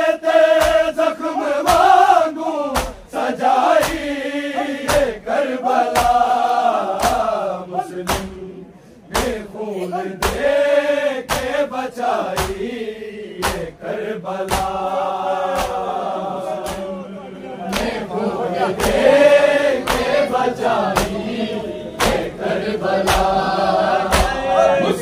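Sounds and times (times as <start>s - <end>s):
men chanting: 0.0s - 25.0s
chest beating slaps: 0.5s - 1.0s, 1.6s - 2.0s, 2.7s - 4.2s, 4.8s - 5.2s, 5.8s - 7.4s, 8.0s - 8.4s, 9.1s - 9.6s, 10.2s - 10.6s, 11.2s - 12.7s, 13.4s - 13.8s, 14.4s - 16.0s, 16.6s - 17.0s, 18.7s - 19.2s, 19.8s - 20.2s, 20.9s - 21.3s, 22.0s - 22.4s, 23.0s - 23.4s, 24.0s - 24.5s.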